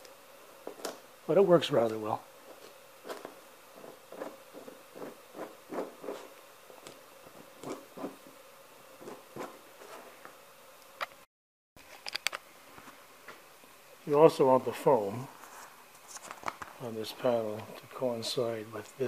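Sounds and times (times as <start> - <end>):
faint steady hum: 0.0 - 19.0
scraper scraping foam: 2.5 - 8.4, 9.0 - 10.2.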